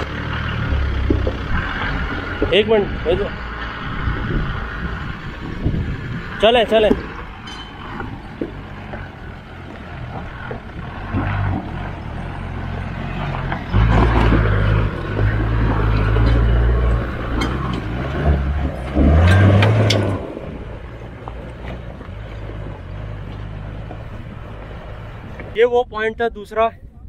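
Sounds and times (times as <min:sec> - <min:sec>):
sharp clicks and knocks: 0:01.0 - 0:02.6, 0:13.2 - 0:20.2
engine revving hard: 0:09.9 - 0:20.8.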